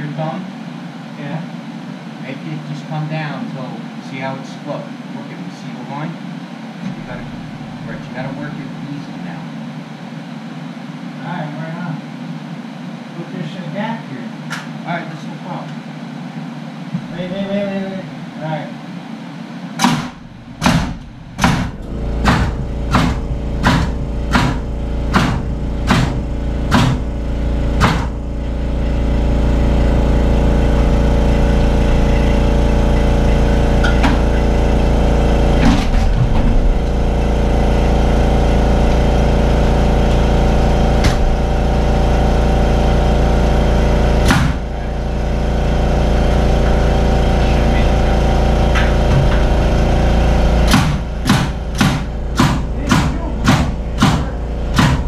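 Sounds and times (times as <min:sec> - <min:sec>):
loud machine hum: 0:00.0 - 0:55.0
hammer blows on lumber: 0:19.8 - 0:27.1, 0:50.6 - 0:55.0.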